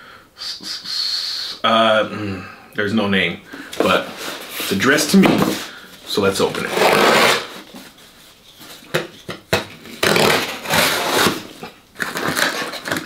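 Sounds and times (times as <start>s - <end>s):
knife cutting tape and cardboard: 6.6s - 7.6s, 8.8s - 13.0s.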